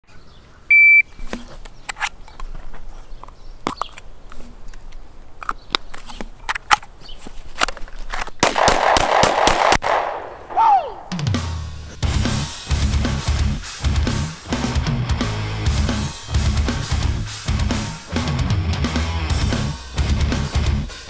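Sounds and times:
shot timer beep: 0.7s - 1.1s
sharp cracks: 5.4s - 11.5s.

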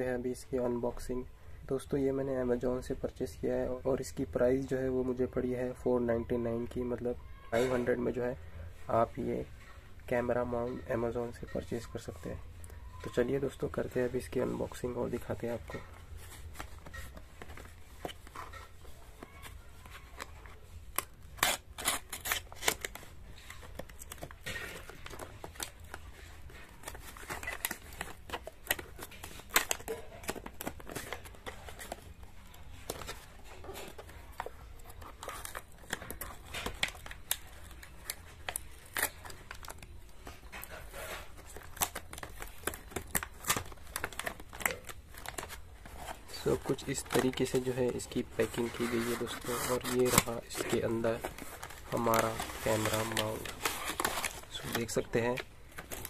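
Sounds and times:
cardboard tearing and crinkling: 14.4s - 56.0s.

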